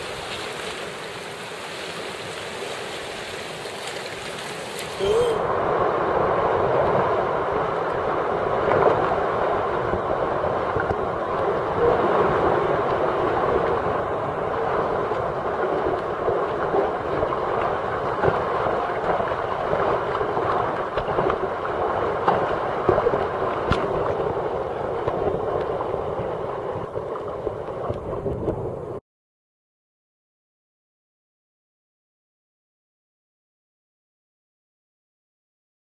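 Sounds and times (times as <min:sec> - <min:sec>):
small water splashes: 0:00.0 - 0:05.3, 0:10.6 - 0:28.4
sea water rushing and churning: 0:00.0 - 0:29.0.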